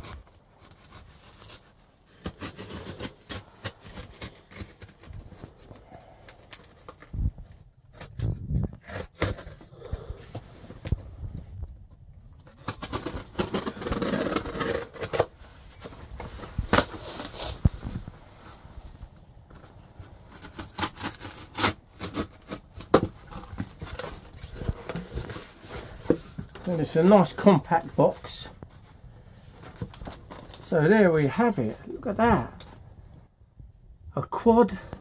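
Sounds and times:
packing tape tearing: 0.0 - 7.2, 7.9 - 9.9, 12.4 - 15.3, 16.2 - 17.6, 19.6 - 27.0
cardboard flaps scraping: 12.4 - 28.3.

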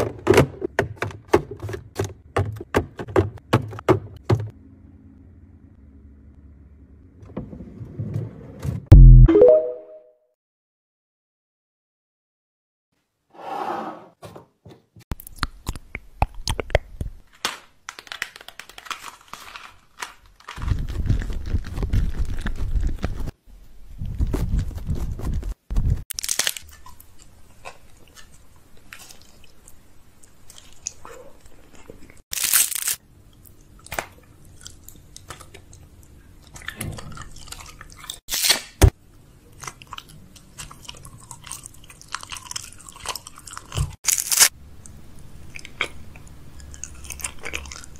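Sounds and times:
loud crunches of food: 17.9 - 23.1, 26.1 - 28.3, 31.7 - 33.0, 39.6 - 44.6, 46.6 - 47.9
wet chewing and biting: 26.1 - 38.6, 39.5 - 47.9.

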